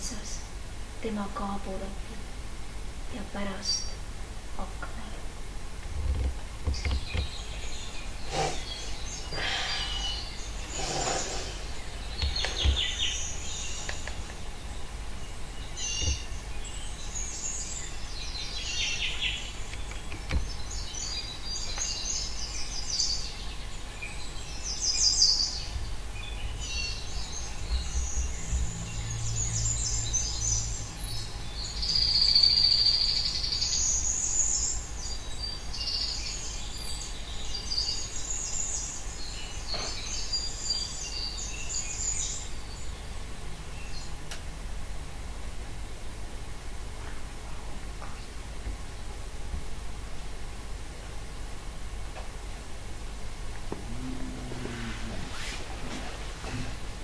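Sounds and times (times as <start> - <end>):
recorded birdsong chirps and trills: 0.0 - 57.0
buzzy bird call: 6.8 - 14.4.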